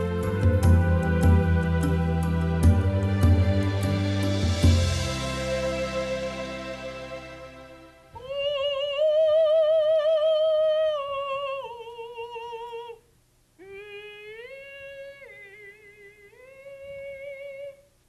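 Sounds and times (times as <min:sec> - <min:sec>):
soft instrumental music: 0:00.0 - 0:08.6
woman singing wordless melody: 0:08.1 - 0:17.9.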